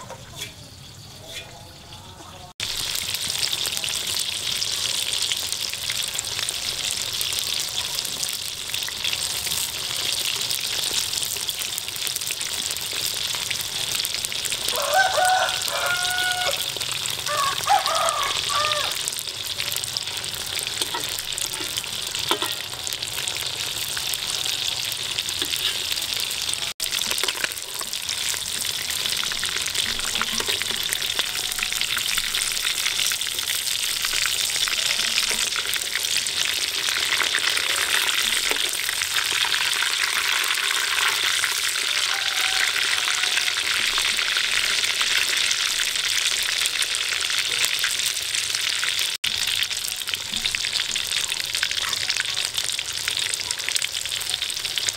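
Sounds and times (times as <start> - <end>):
oil sizzling and crackling: 0.0 - 54.9.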